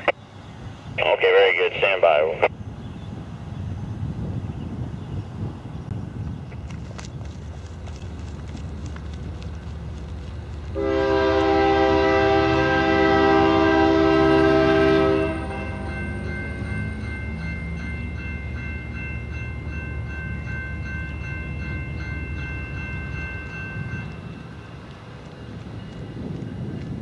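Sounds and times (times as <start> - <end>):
locomotive horn blast: 10.8 - 16.2
high ringing with regular strikes: 15.4 - 24.8.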